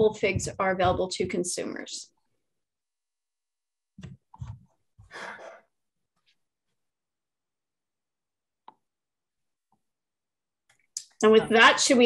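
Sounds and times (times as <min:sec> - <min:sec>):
person breathing: 0:05.0 - 0:05.7.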